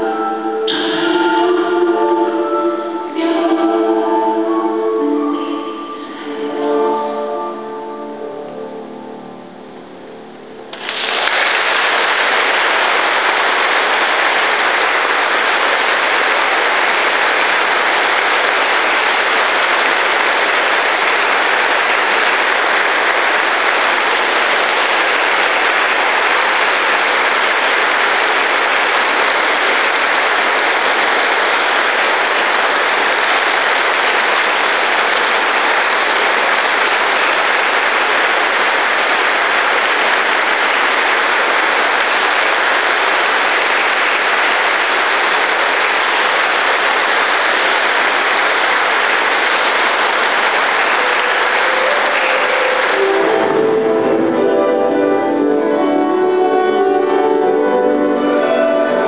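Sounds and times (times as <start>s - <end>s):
audience applauding: 10.7s - 54.5s.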